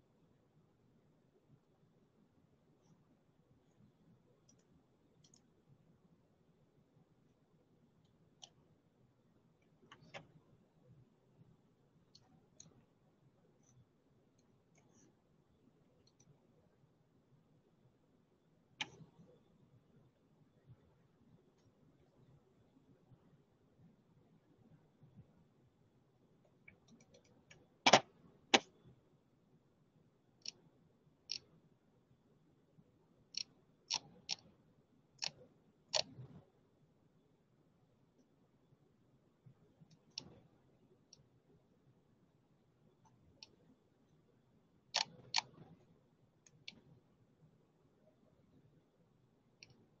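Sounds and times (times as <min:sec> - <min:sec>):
sharp irregular clicks: 0:04.4 - 0:05.6, 0:08.0 - 0:08.7, 0:09.6 - 0:10.4, 0:18.8 - 0:19.2, 0:26.5 - 0:28.8, 0:30.4 - 0:31.5, 0:33.3 - 0:34.6, 0:35.2 - 0:36.5, 0:39.8 - 0:40.5, 0:43.0 - 0:43.6, 0:44.9 - 0:46.9, 0:49.5 - 0:50.0
faint clicks: 0:49.6 - 0:50.0.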